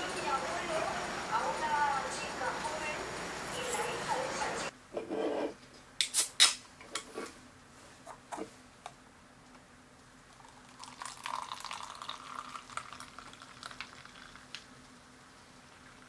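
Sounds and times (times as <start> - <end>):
drink pouring into paper cup: 10.3 - 14.6.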